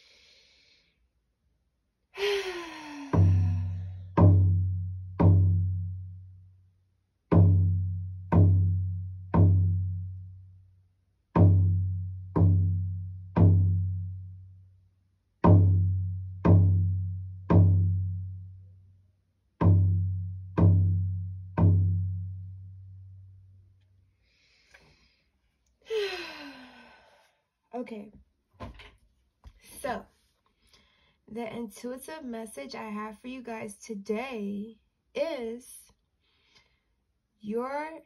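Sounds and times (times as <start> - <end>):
hand drum beats: 3.1 - 5.9, 7.3 - 10.0, 11.4 - 14.2, 15.4 - 18.2, 19.6 - 22.5.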